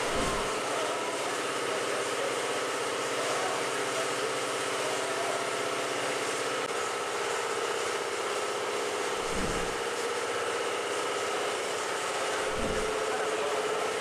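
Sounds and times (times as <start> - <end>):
steady mechanical hum: 0.0 - 14.0
low rumble: 9.2 - 9.8, 12.5 - 12.9.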